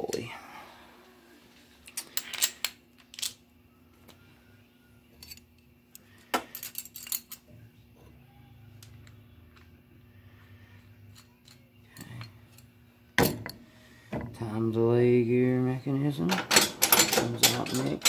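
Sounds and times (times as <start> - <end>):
faint steady hum: 0.0 - 18.0
metal parts and tools clinking: 1.9 - 3.4, 5.1 - 7.5, 11.0 - 13.6, 16.2 - 18.0.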